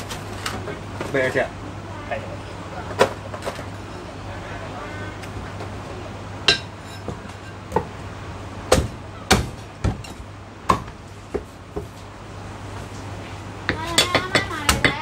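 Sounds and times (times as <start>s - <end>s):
cleaver chopping on wooden block: 8.7s - 10.1s, 10.7s - 11.9s.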